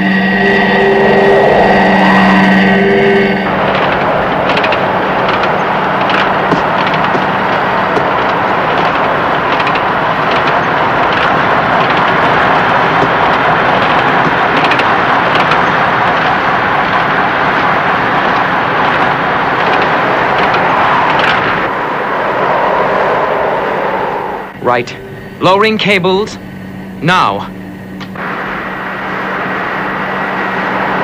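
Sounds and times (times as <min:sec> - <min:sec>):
aircraft engines overhead: 0:00.0 - 0:31.0
low steady hum: 0:00.0 - 0:31.0
rushing cable car: 0:00.0 - 0:31.0.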